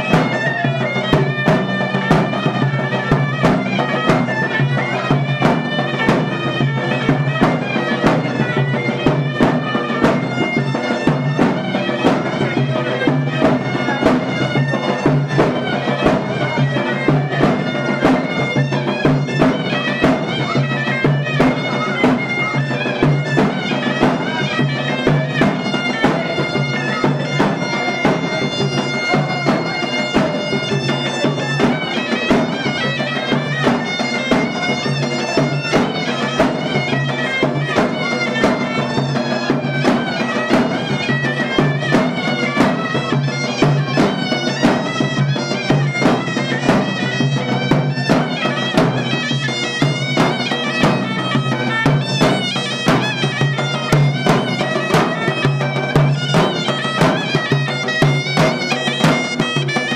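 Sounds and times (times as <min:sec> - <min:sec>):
steady drum beat: 0:00.0 - 0:59.9
wind instrument melody: 0:00.0 - 0:59.9.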